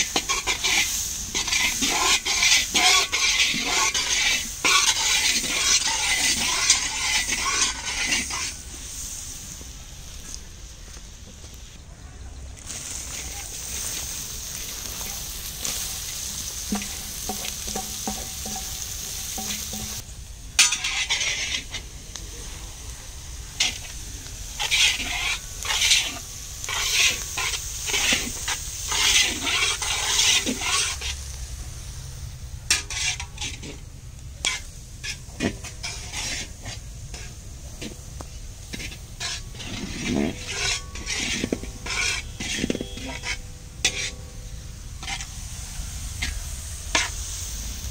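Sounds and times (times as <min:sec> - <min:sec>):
spatula scraping iron pan: 0:00.0 - 0:08.7, 0:14.9 - 0:20.0, 0:20.6 - 0:21.9, 0:23.6 - 0:23.9, 0:24.6 - 0:31.2, 0:32.7 - 0:33.8, 0:34.4 - 0:38.0, 0:38.6 - 0:45.4, 0:46.1 - 0:47.2
ingredients sizzling in oil: 0:00.0 - 0:11.8, 0:12.4 - 0:47.9
seeds sizzling in hot oil: 0:00.0 - 0:11.8, 0:12.4 - 0:47.9.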